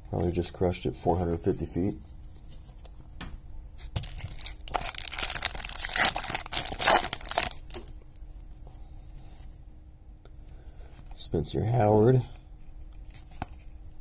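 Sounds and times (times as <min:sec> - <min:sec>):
foil wrapper crinkling: 0:03.9 - 0:08.1.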